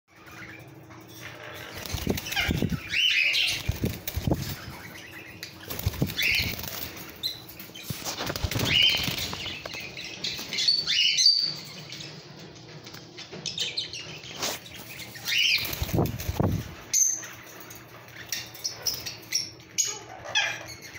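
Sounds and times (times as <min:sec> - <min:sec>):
parakeets chirping: 0:00.1 - 0:12.5, 0:13.2 - 0:20.9
birds flapping against cage wire: 0:01.5 - 0:10.6, 0:14.4 - 0:17.8.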